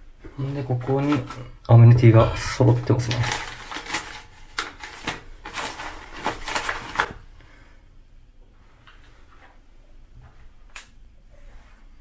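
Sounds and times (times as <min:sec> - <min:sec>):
paper packets rustling: 0:00.4 - 0:01.6, 0:02.4 - 0:07.3.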